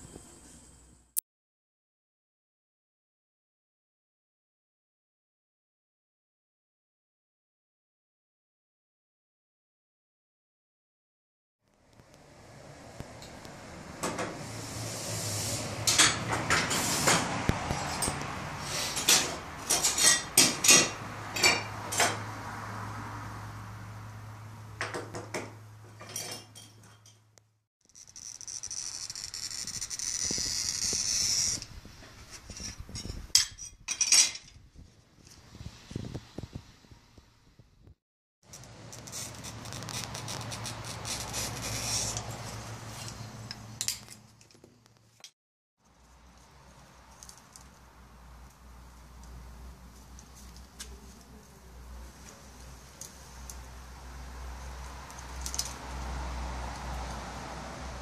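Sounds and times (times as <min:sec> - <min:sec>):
glass cutter scoring glass: 0:27.9 - 0:31.7, 0:38.6 - 0:42.6
foil tape clicks and crinkles: 0:38.9 - 0:41.7.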